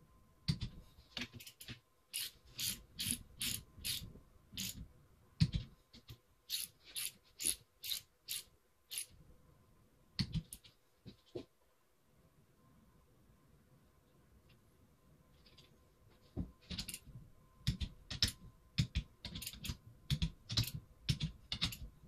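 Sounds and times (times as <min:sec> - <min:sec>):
ratchet wrench clicking: 0:06.5 - 0:09.1.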